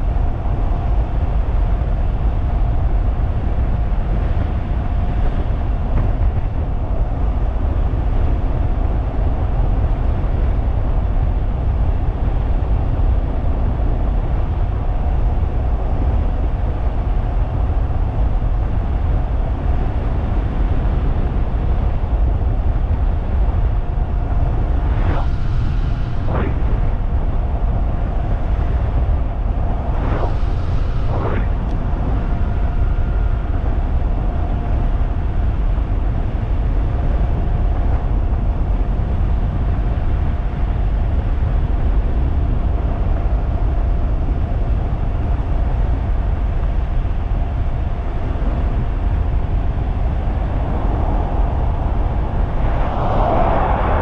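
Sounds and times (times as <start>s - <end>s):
wind rushing over microphone: 0.0s - 54.0s
sweeping whooshes: 24.1s - 33.5s, 50.1s - 54.0s.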